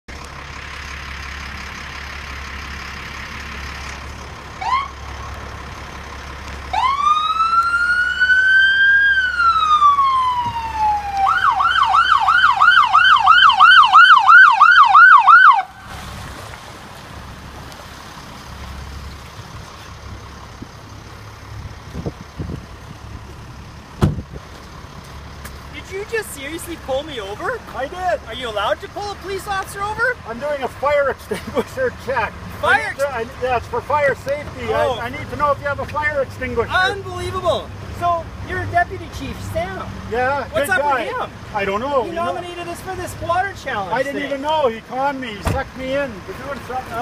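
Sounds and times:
vehicle rumble: 0.1 - 47.0
police siren: 4.6 - 5.0, 6.7 - 15.9.

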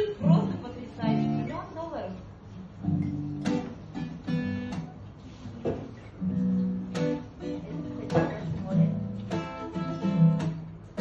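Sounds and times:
acoustic guitar strumming chords: 2.8 - 11.0.

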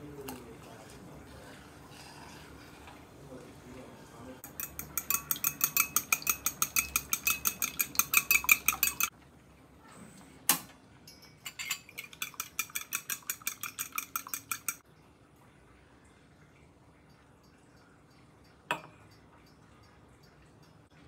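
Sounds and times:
fork clinking against glass bowl: 4.4 - 9.1, 11.1 - 14.8.

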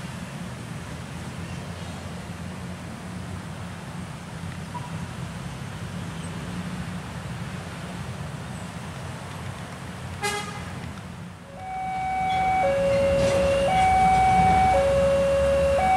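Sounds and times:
locomotive horn: 10.2 - 10.6, 11.5 - 15.9
diesel locomotive rumble: 11.3 - 15.9.

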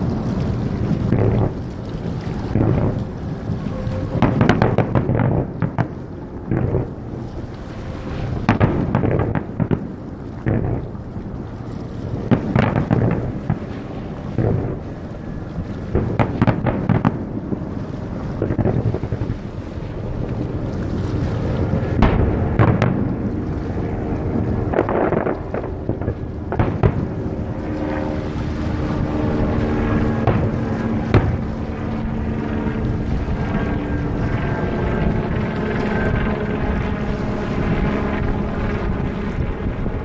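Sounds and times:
continuous rumble: 0.0 - 40.0
steady low hum: 0.0 - 40.0
fireworks bursting: 4.0 - 5.9, 12.3 - 13.7.

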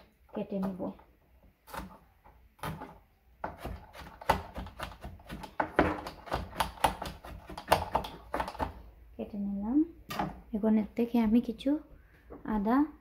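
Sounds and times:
knife chopping on plastic board: 1.6 - 2.0, 2.6 - 8.8.

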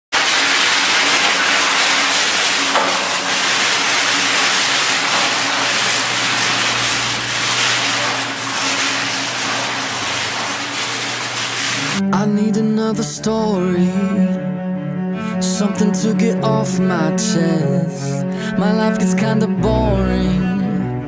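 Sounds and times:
loud rushing hiss: 0.2 - 12.0.

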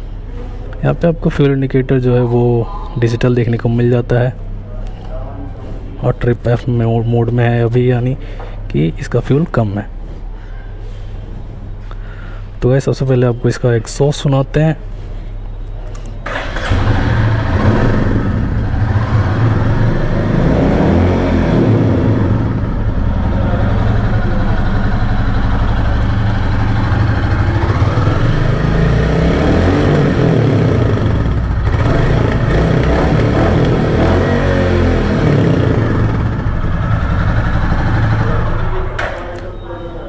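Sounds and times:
motorcycle engine idling and revving: 16.3 - 39.2.

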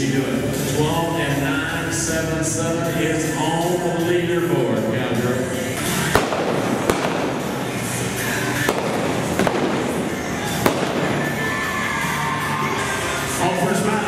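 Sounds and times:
revolver shots cracking: 5.8 - 11.9.

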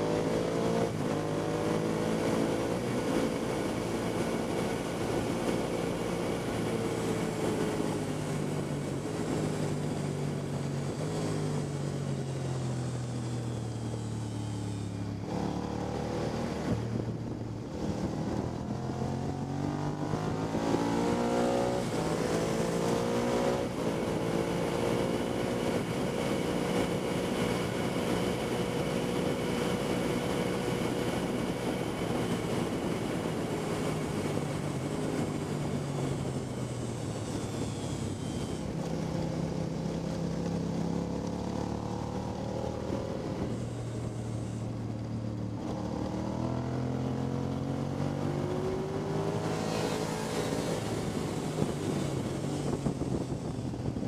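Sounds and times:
wind noise: 0.0 - 40.8, 41.6 - 54.0
motorcycle engine: 0.0 - 54.0.

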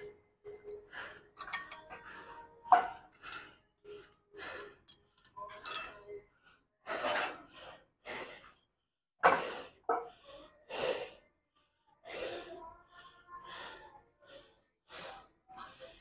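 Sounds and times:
man breathing hard: 0.6 - 5.4, 6.8 - 8.6, 9.3 - 12.6, 13.4 - 16.0.

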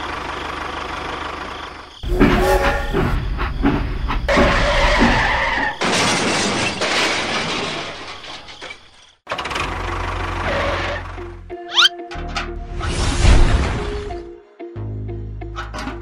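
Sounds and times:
toy train squeal: 2.0 - 3.4, 10.4 - 11.1, 11.7 - 11.9
shattering crash: 2.0 - 9.2.

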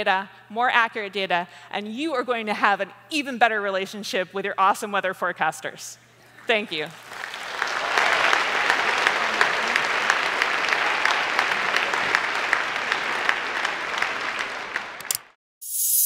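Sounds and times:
audience clapping: 6.8 - 15.4.

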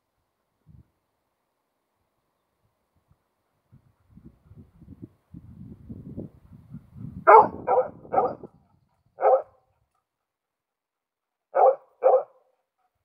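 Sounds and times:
dog barking: 7.2 - 8.5, 9.2 - 9.6, 11.5 - 12.6.

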